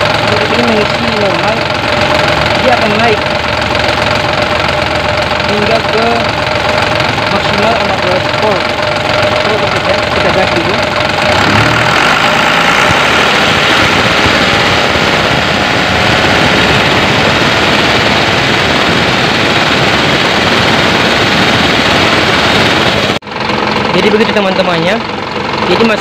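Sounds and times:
diesel engine running: 0.0s - 26.0s.

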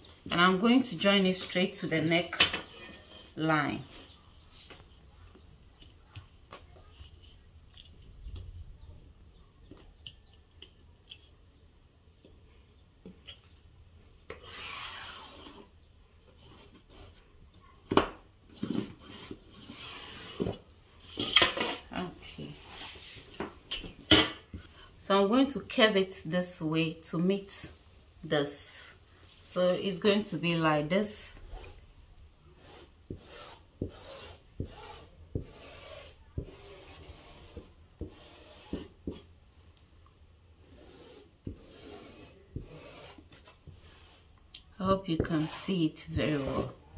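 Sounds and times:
line scraping on cloth: 14.4s - 15.7s, 32.5s - 39.3s, 40.6s - 46.8s
chalk knocking on table: 32.6s - 39.2s.

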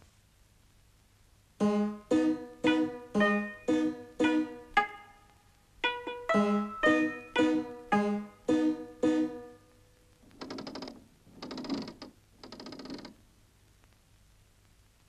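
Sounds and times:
mechanical instrument plucking notes: 1.6s - 9.8s.

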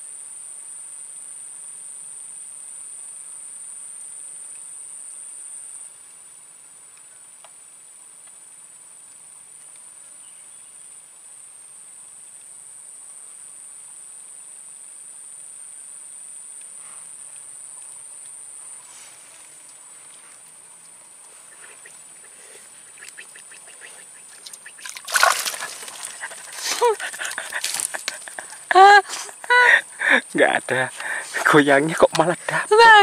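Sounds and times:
fish splashing and thrashing: 21.6s - 30.2s.

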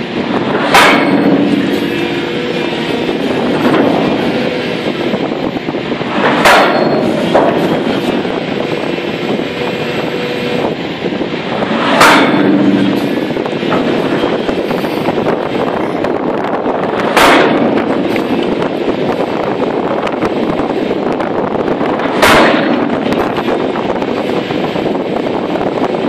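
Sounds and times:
steady hum: 0.0s - 26.0s
hydraulic breaker hammering rock: 0.4s - 5.2s, 6.0s - 8.3s, 11.6s - 14.8s, 17.0s - 18.7s, 21.9s - 23.5s.

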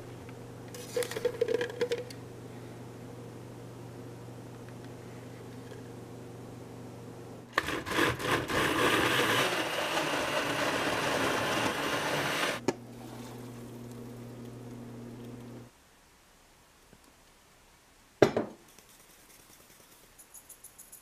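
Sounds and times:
faint low hum: 0.0s - 7.5s
blender running: 7.5s - 12.6s.

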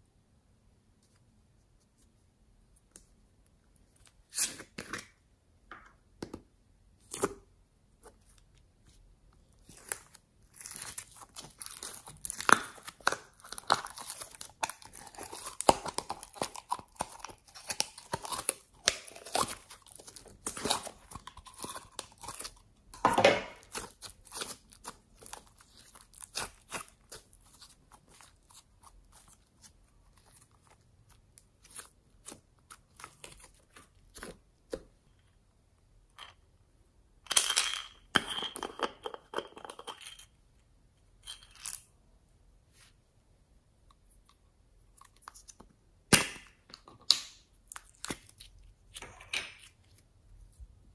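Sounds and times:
slime crackling and tearing: 9.6s - 22.6s, 23.6s - 34.4s.

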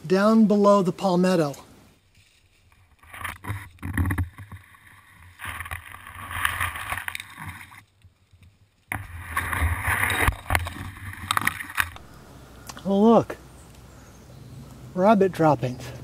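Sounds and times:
brushing past palm fronds: 1.9s - 3.8s.

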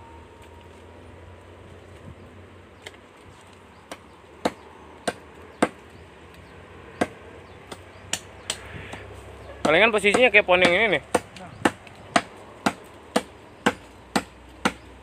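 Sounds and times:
hatchet chopping branch: 3.8s - 15.0s.

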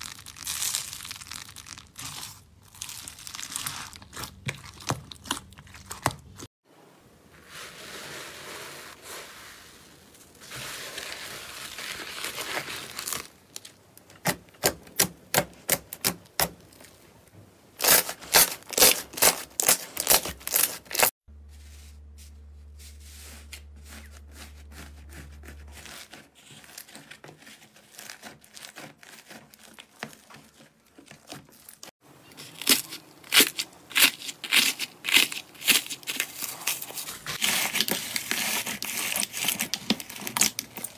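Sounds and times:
slime squelching: 0.0s - 6.5s.

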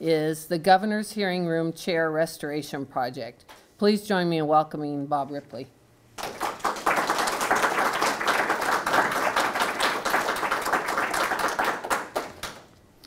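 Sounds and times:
audience applauding: 6.2s - 12.7s.

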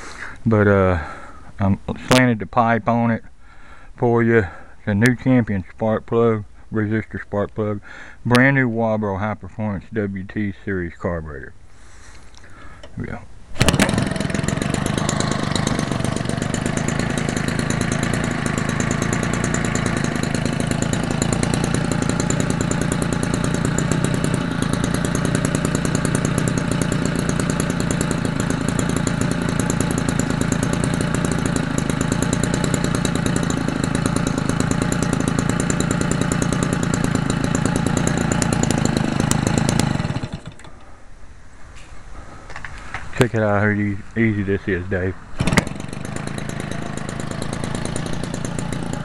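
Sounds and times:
two-stroke engine running: 13.6s - 40.8s, 45.4s - 49.0s.

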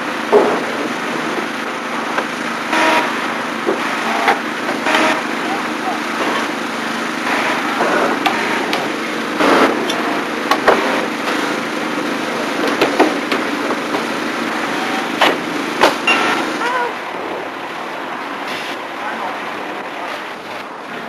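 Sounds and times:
engine running: 0.0s - 21.0s.

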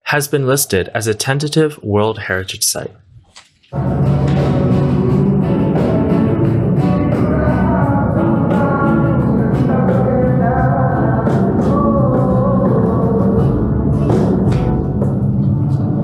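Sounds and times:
man singing: 3.8s - 14.3s
strummed acoustic guitars: 3.8s - 16.0s.

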